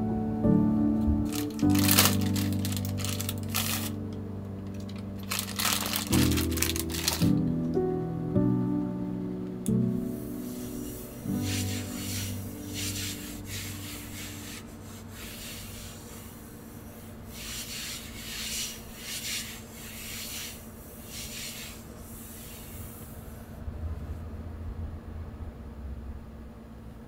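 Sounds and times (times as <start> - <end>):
rubbing strokes: 1.3 - 4.0, 10.2 - 23.4.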